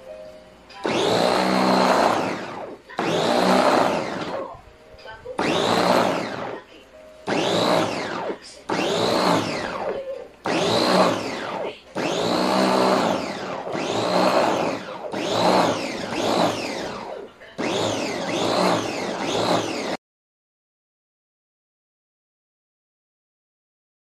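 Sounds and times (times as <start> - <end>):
electric chopper motor whirring: 0.8 - 4.6, 5.2 - 20.0.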